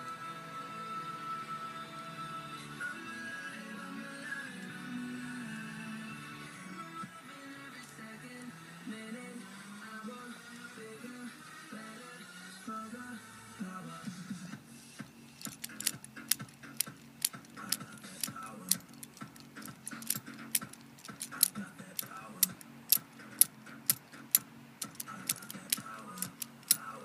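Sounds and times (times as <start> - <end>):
background music: 0.0 - 27.0
sharp irregular clicks: 15.4 - 26.9.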